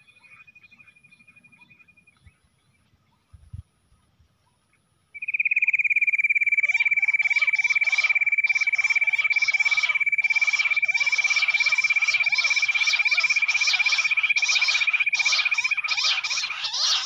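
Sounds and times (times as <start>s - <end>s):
chorus of chirping bird calls: 0.0s - 3.4s, 4.5s - 17.0s
bird trill: 5.2s - 17.0s.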